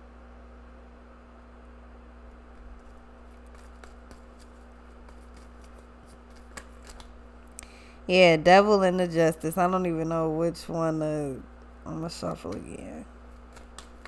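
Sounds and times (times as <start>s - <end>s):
cards clicking and flicking: 2.6s - 7.6s, 12.3s - 14.0s.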